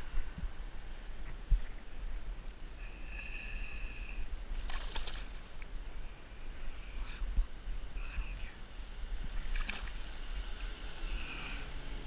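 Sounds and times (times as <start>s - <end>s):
steady low rumble: 0.0s - 12.0s
fish splashing in water: 4.5s - 5.7s, 9.2s - 10.2s.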